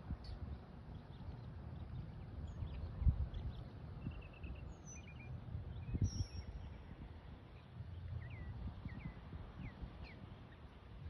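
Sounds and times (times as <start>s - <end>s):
birds chirping: 0.0s - 11.0s
low uneven rumble: 0.0s - 11.0s.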